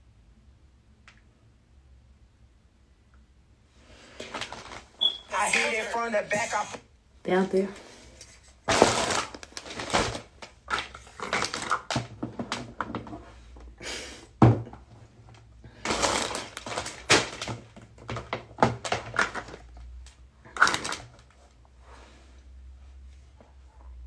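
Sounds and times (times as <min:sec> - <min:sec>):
plastic bag crinkling: 0:08.3 - 0:12.1, 0:15.7 - 0:19.9, 0:20.5 - 0:21.4.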